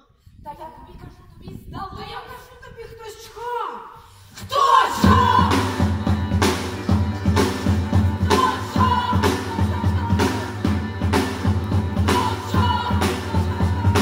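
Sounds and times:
women singing: 0:04.4 - 0:14.0
live band playing: 0:05.0 - 0:14.0.

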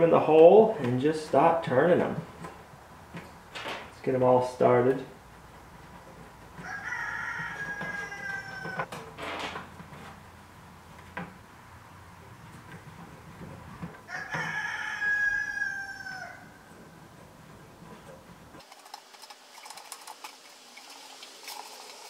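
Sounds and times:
rooster crowing: 0:06.6 - 0:08.9, 0:14.0 - 0:16.7.

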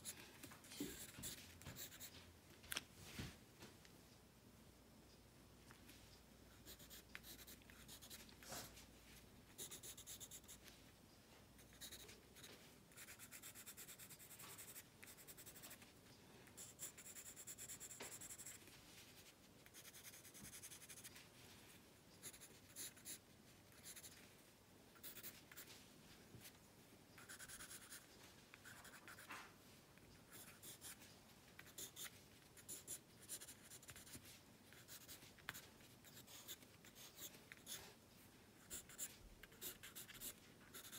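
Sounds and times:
pencil scratching on paper: 0:00.0 - 0:02.1, 0:06.6 - 0:08.8, 0:09.6 - 0:10.7, 0:11.6 - 0:15.8, 0:16.6 - 0:21.2, 0:22.2 - 0:24.2, 0:25.0 - 0:25.7, 0:27.2 - 0:29.4, 0:30.3 - 0:31.0, 0:31.6 - 0:37.9, 0:38.6 - 0:40.9.

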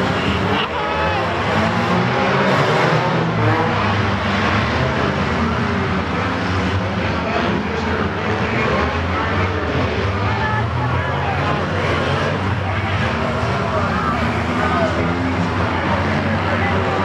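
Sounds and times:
car engines racing: 0:00.0 - 0:17.0
crowd voices: 0:00.0 - 0:17.0.

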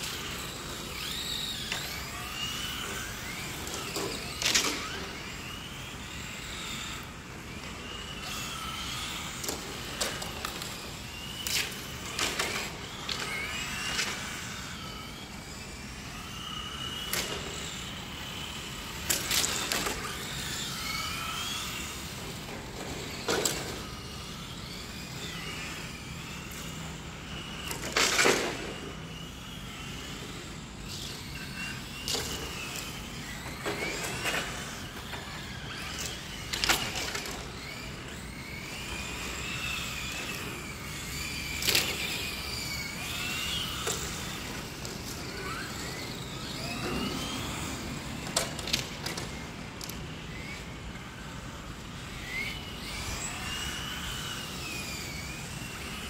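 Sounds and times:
electric motors whining: 0:00.0 - 0:56.0.

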